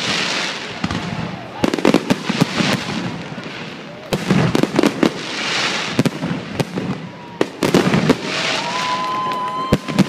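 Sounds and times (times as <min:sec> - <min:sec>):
firework bangs: 0:00.0 - 0:10.0
firework crackling: 0:00.0 - 0:10.0
firework whistle: 0:05.3 - 0:10.0.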